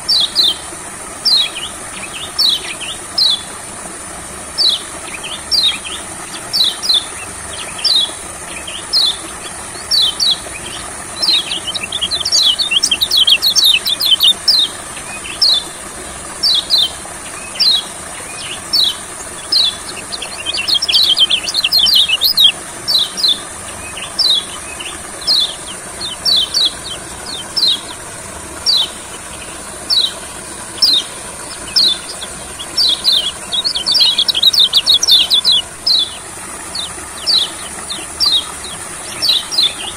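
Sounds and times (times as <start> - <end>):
bird chirping: 4.6 - 15.7, 16.4 - 28.0, 28.6 - 39.9.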